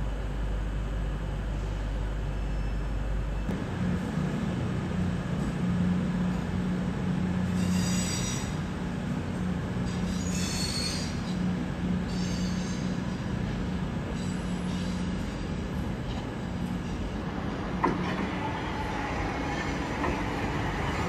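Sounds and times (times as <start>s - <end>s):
electric train hum: 0.0s - 21.0s
train wheels squealing: 2.4s - 3.5s, 7.5s - 8.7s, 9.8s - 13.2s, 14.1s - 15.6s.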